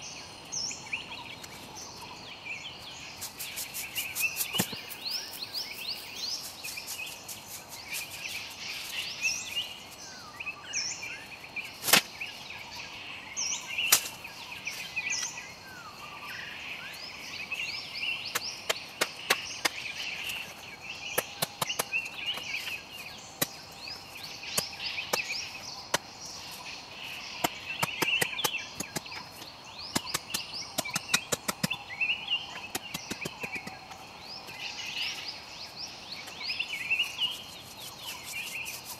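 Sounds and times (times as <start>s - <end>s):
birds chirping: 0.0s - 38.9s
machete chopping bamboo: 11.8s - 12.1s, 13.9s - 14.2s, 27.4s - 29.3s, 29.9s - 31.8s.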